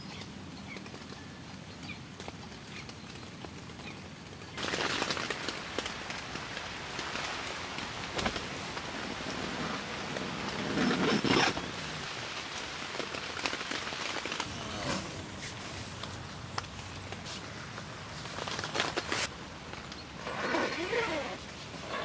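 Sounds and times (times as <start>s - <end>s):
rain pattering on a tent: 0.0s - 22.0s
sleeping bag rustling: 4.6s - 22.0s.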